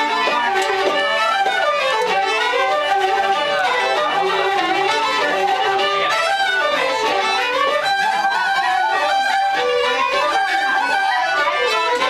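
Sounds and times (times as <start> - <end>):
fiddles: 0.0 - 12.0
wooden flutes: 0.0 - 12.0.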